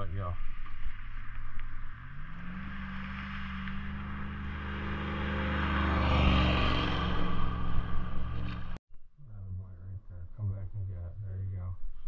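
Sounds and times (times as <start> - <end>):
vehicle driving past: 0.9 - 8.8.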